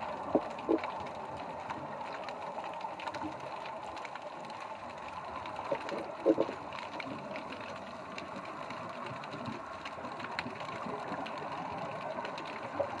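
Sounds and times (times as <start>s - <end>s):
underwater crackling hiss: 0.1s - 13.0s.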